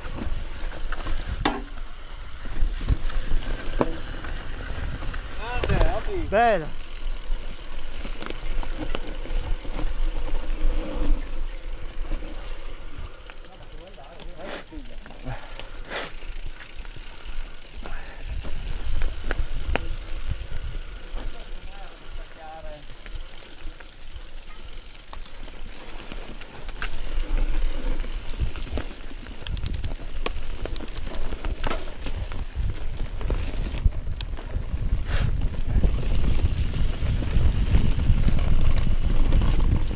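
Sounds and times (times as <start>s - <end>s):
bike rattling over bumps: 0.0s - 39.9s
bike tyres rolling over dirt: 0.0s - 39.9s
wind rumble on microphone: 2.3s - 6.6s, 17.9s - 21.4s, 26.9s - 39.9s
wind buffeting microphone: 32.0s - 39.9s.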